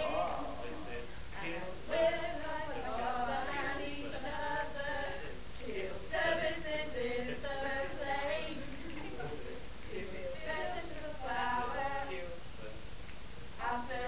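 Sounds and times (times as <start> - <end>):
a cappella group singing: 0.0 - 12.8, 13.6 - 14.0.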